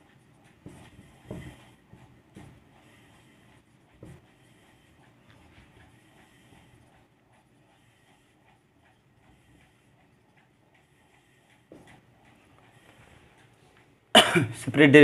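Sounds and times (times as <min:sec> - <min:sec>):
marker writing on whiteboard: 0:00.0 - 0:13.8.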